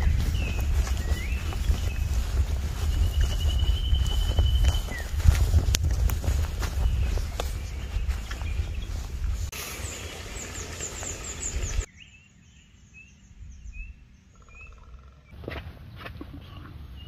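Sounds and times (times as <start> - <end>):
bird trill: 0.0 - 5.2
birds chirping: 0.0 - 15.4.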